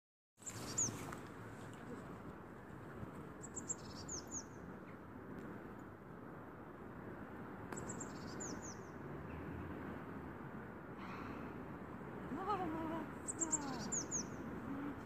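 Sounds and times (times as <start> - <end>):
city hum: 0.4 - 15.0
songbird chirping: 3.3 - 4.7, 7.7 - 9.0, 12.4 - 15.0.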